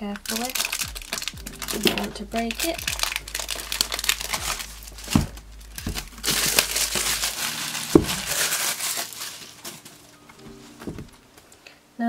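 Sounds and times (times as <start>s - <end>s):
plastic wrap crinkling: 0.0s - 11.7s
dull knocks: 10.8s - 11.2s.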